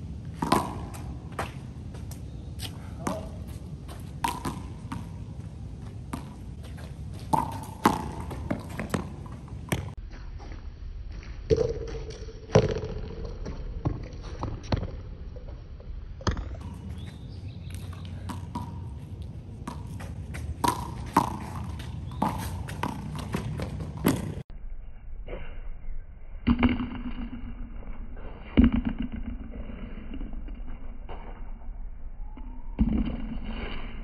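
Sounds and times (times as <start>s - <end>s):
handball smacking against concrete: 0.4s - 1.6s, 4.2s - 5.1s, 7.3s - 9.1s, 20.6s - 24.4s.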